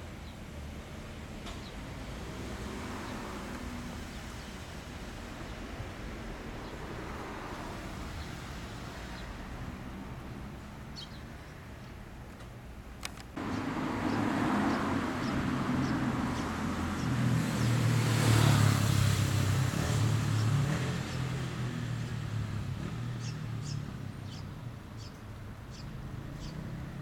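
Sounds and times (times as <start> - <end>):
motor vehicle passing: 13.4 - 25.1, 25.7 - 27.0.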